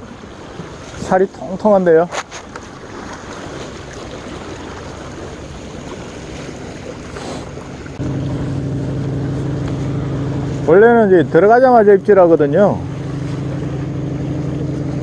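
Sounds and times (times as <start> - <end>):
small waves against breakwater: 0.0 - 15.0
wind: 0.0 - 15.0
steady engine drone: 3.6 - 15.0.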